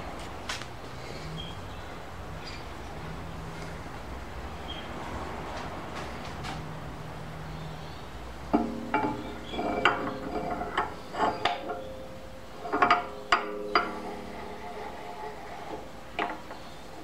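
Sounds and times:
metal bar knocking and clinking: 8.5 - 16.7.

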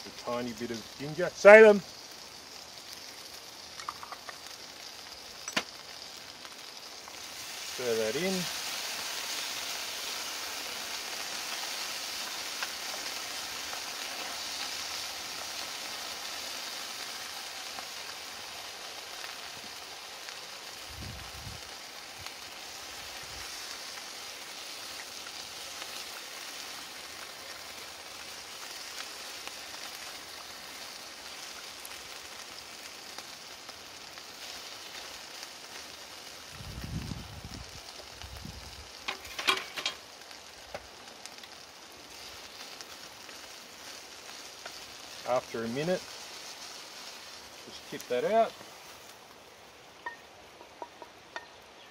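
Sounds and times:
vegetables sizzling in frying pan: 0.0 - 51.9.

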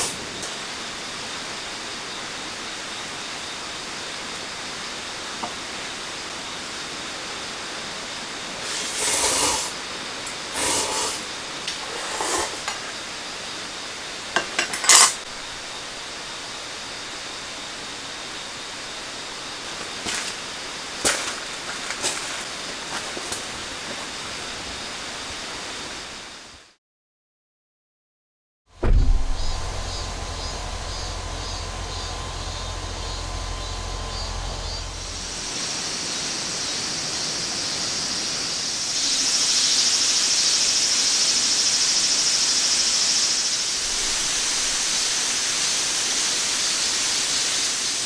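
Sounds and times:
rain on a tent: 18.4 - 26.2.

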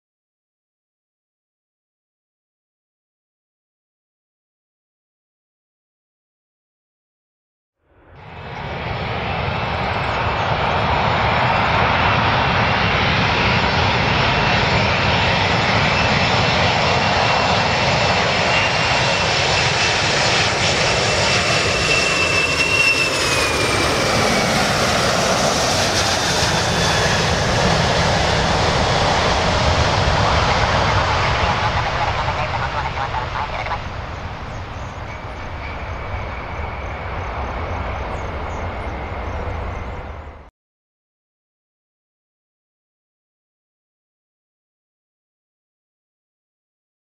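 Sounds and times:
jet engine roar: 7.9 - 40.5.

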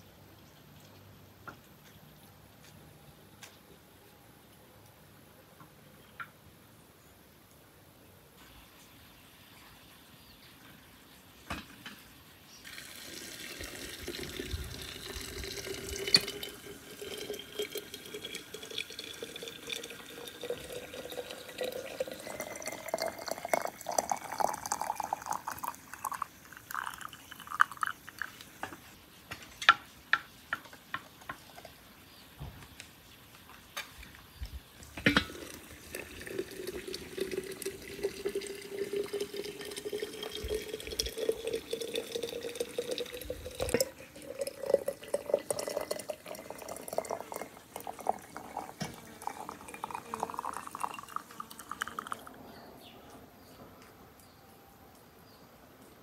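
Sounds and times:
water pouring into glass jar: 12.6 - 28.7, 35.0 - 52.4
water dripping: 12.6 - 31.9, 32.8 - 52.3.

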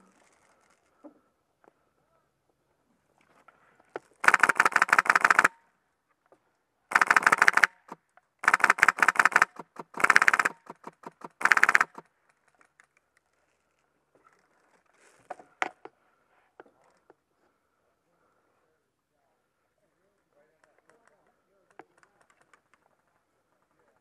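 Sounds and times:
airsoft machine gun full-auto fire: 4.2 - 5.5, 6.9 - 12.0
faint clicks: 8.4 - 13.4.

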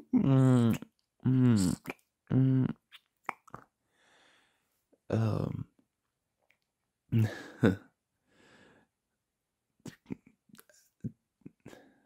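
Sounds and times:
soft mouth clicks: 2.9 - 3.7
faint breath: 3.9 - 4.8, 8.2 - 9.0.

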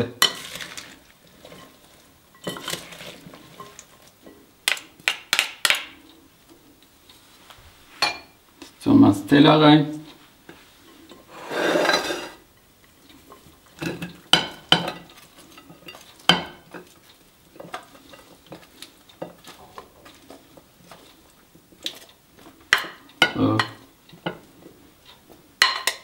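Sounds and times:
salad rustling scrapes: 0.3 - 4.1, 10.6 - 12.4
glass bowl clinking on plate: 8.0 - 8.4, 25.6 - 26.0.

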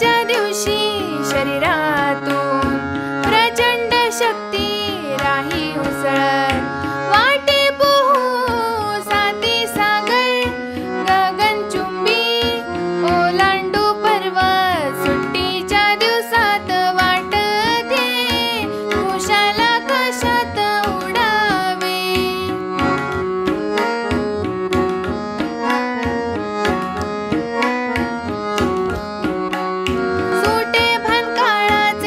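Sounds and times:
woman singing: 0.0 - 22.6, 30.3 - 32.0
tabla-led music: 0.0 - 32.0.

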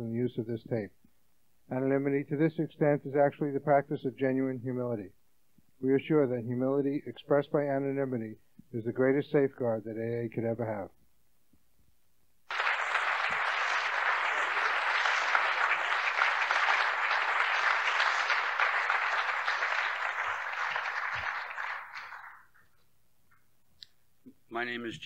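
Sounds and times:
audience applauding: 12.5 - 22.7.

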